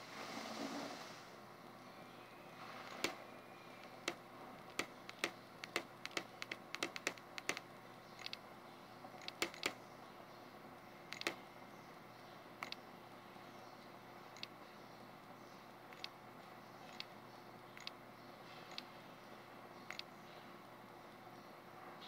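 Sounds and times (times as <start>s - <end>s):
stylus tapping on touchscreen: 3.8s - 8.4s, 9.2s - 9.8s.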